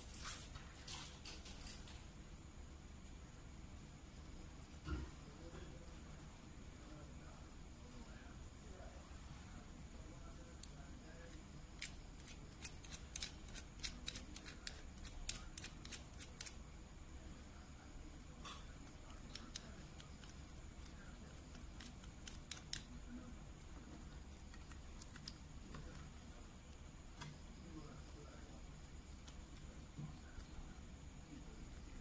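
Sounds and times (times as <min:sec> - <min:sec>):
faint steady hum: 0:00.0 - 0:32.0
plastic parts clicking: 0:11.8 - 0:16.6.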